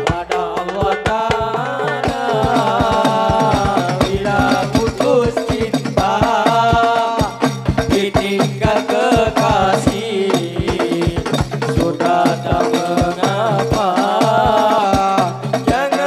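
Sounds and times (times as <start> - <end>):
frame drums beating fast: 0.0 - 16.0
man singing: 0.0 - 16.0.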